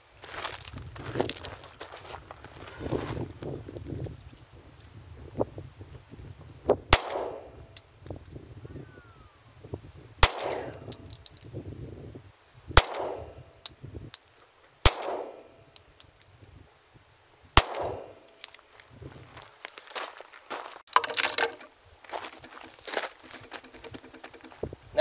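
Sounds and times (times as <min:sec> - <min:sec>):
pistol shots echoing: 0:06.9 - 0:07.8, 0:10.2 - 0:11.2, 0:12.8 - 0:13.5, 0:14.9 - 0:15.7, 0:17.6 - 0:18.3.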